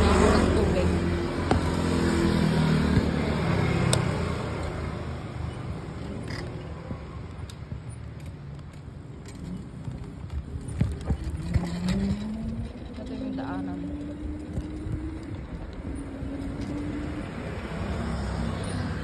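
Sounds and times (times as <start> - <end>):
road traffic noise: 0.0 - 19.0
vehicle engine hum: 0.0 - 19.0
small clicks and rattles: 3.9 - 19.0.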